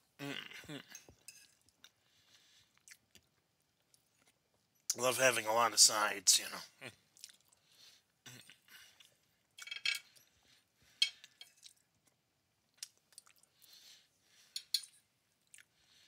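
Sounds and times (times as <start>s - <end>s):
person chewing: 0.7s - 4.5s, 7.1s - 10.3s, 11.0s - 13.9s, 15.4s - 16.0s
cutlery clinking on plate: 1.2s - 1.6s, 9.6s - 10.1s.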